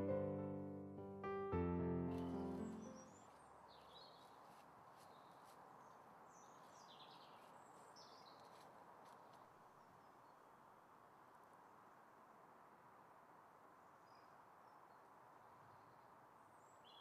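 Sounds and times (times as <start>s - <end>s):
small birds chirping: 2.0s - 10.5s, 13.9s - 17.0s.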